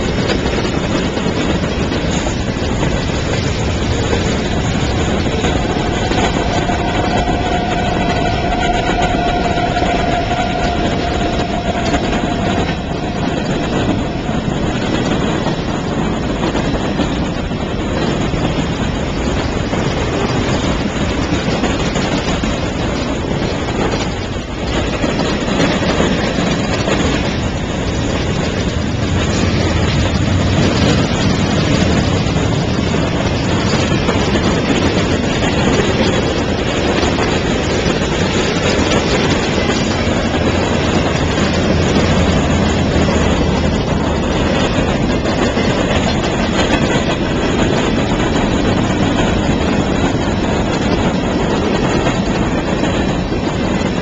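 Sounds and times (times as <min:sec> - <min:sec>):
freight train rolling on rails: 0:00.0 - 0:54.0.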